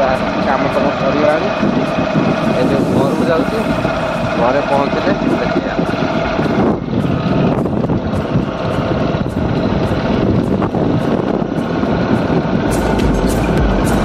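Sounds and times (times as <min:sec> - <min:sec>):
motorbike engine running: 0:00.0 - 0:14.0
wind noise on microphone: 0:00.0 - 0:14.0
music with a beat: 0:06.5 - 0:14.0.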